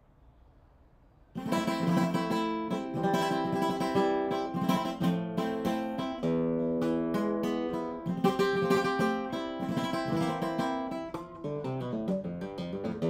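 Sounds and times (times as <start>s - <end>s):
acoustic guitar playing: 1.3s - 13.0s.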